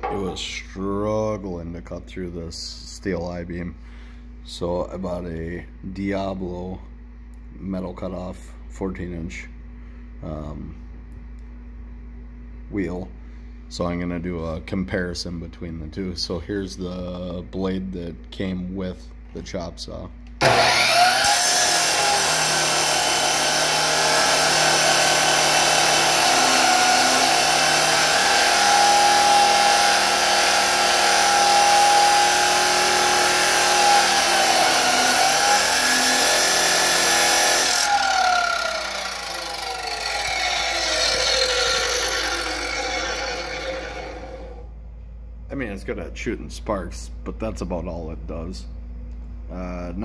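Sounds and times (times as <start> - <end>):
chop saw grinding steel: 0.0 - 0.4, 20.4 - 44.6
saw winding down whine: 20.4 - 44.7.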